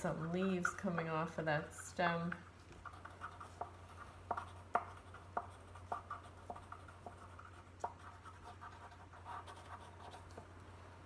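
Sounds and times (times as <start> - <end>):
pencil scratching on paper: 2.8 - 10.4.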